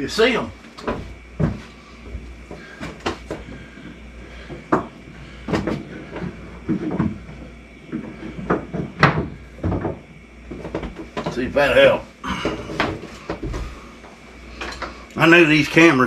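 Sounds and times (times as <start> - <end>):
steady low hum: 0.0 - 16.0
knocks and scrapes: 4.3 - 11.4.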